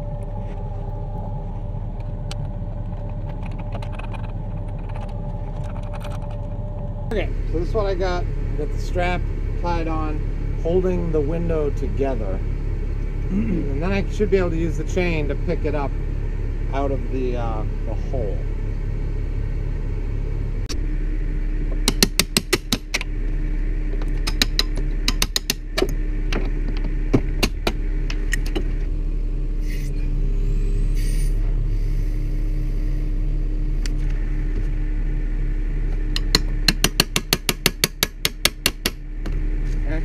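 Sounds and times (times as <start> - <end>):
truck engine running: 0.0 - 40.0.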